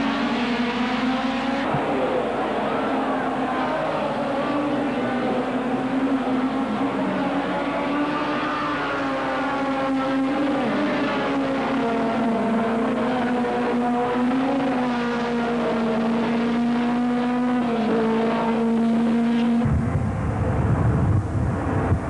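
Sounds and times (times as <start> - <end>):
racing car engines at high revs: 0.0 - 22.0.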